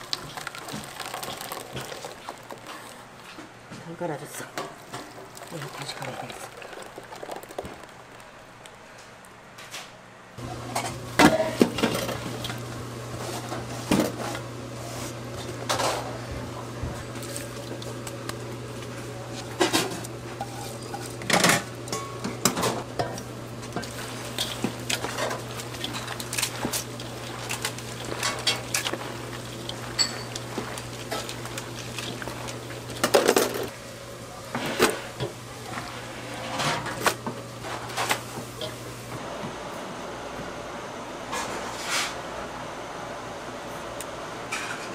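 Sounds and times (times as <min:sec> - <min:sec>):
kitchen utensils and dishes clattering: 0:10.7 - 0:12.6, 0:19.4 - 0:33.8, 0:34.5 - 0:38.8, 0:44.5 - 0:44.9.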